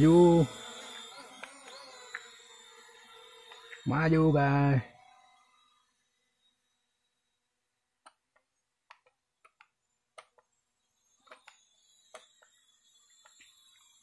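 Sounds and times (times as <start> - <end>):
sharp clicks: 0.0 - 2.3
drone motors buzzing: 0.0 - 14.0.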